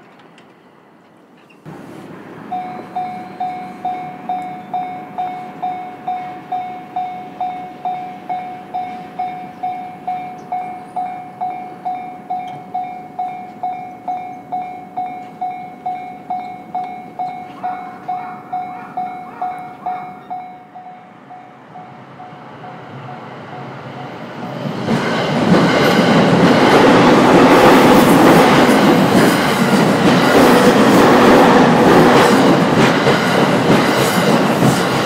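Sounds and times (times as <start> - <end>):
railway crossing bell ringing: 1.7 - 24.4.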